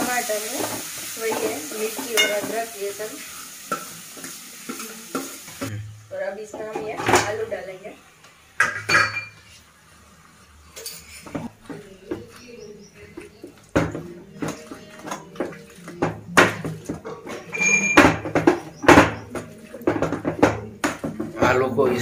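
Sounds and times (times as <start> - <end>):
potato masher knocking on pan: 18.0 - 21.6.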